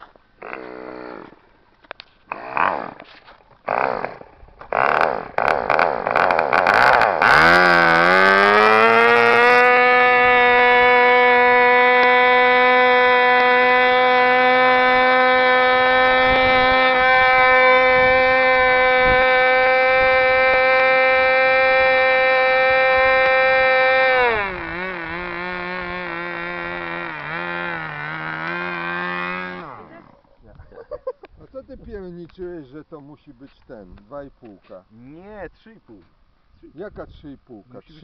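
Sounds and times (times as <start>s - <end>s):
small piston engine running: 3.7s - 30.0s.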